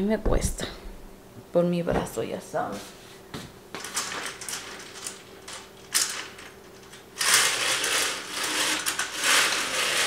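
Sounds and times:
vertical blind slats clattering: 0:03.8 - 0:10.0.

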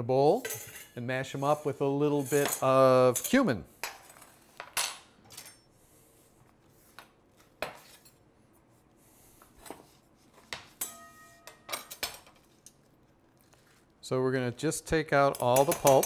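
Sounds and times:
metallic ring from bowl: 0:10.8 - 0:12.0
bowl and utensils clinking: 0:10.8 - 0:12.9, 0:15.3 - 0:16.0.

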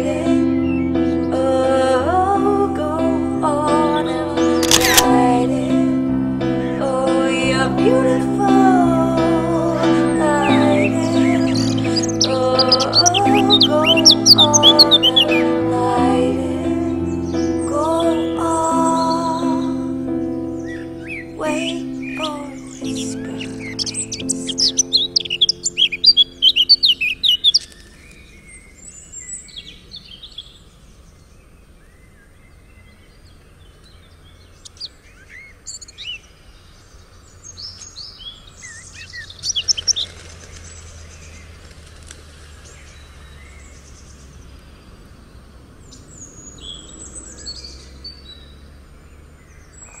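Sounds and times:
song playing: 0:00.0 - 0:27.2
birds chirping: 0:00.0 - 0:50.0.

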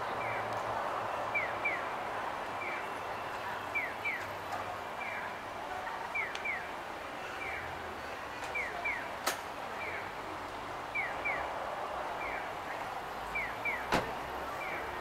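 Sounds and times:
street noise: 0:00.0 - 0:15.0
crossing signal chirping: 0:01.3 - 0:01.9, 0:02.6 - 0:04.3, 0:10.9 - 0:11.5, 0:12.2 - 0:13.9.

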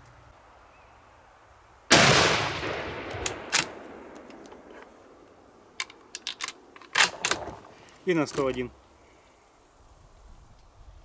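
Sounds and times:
rifle shot: 0:01.9 - 0:04.7
rifle bolt clicking: 0:03.1 - 0:04.9.

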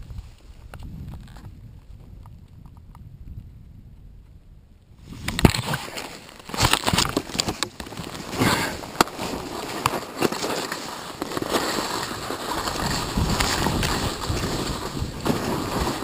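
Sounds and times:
crackles and knocks: 0:00.0 - 0:03.5, 0:05.1 - 0:16.0
skis hissing over snow: 0:08.2 - 0:16.0.

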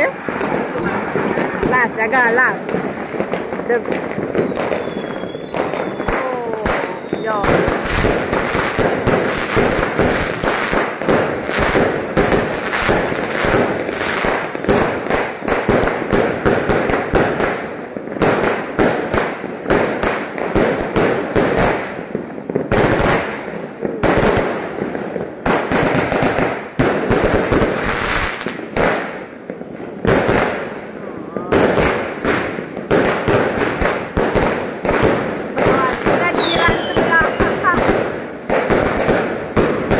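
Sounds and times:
fireworks bangs and crackles: 0:00.0 - 0:39.9.

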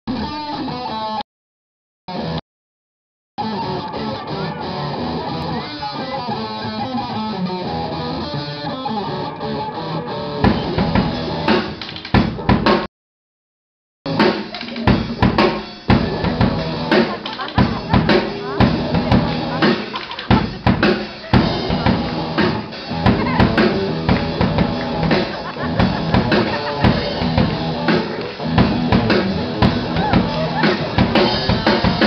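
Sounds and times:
drum kit hits: 0:10.4 - 0:12.9, 0:14.1 - 0:32.0
electric guitar fast run: 0:21.4 - 0:32.0.

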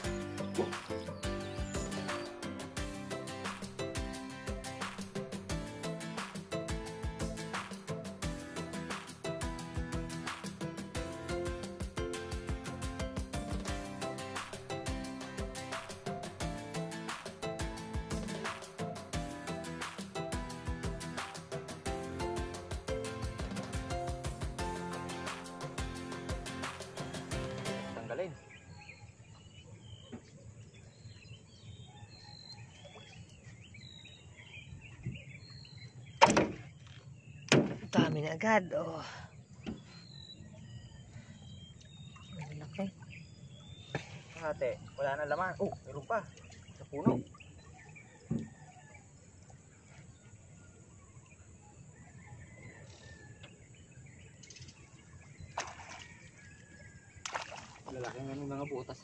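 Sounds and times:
birds chirping: 0:00.0 - 0:26.8, 0:27.5 - 0:59.0
outdoor background noise: 0:00.0 - 0:59.0.

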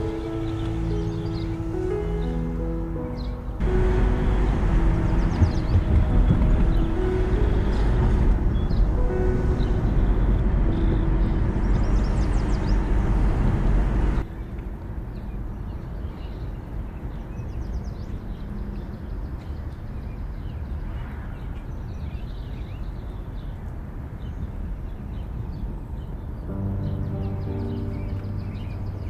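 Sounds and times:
car idling hum: 0:00.0 - 0:14.2
car road and cabin noise: 0:00.0 - 0:19.9.

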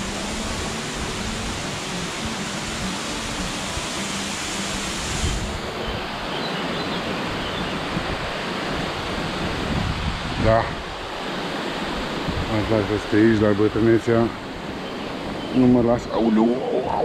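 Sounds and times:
waterfall pouring: 0:00.0 - 0:05.7.

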